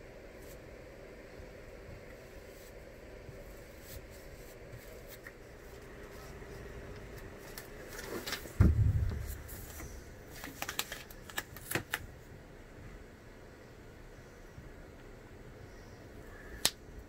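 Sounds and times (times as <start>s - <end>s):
faint steady hum: 0.0s - 17.0s
quick clicks and rustles: 7.4s - 12.0s
dull thump: 8.6s - 9.5s.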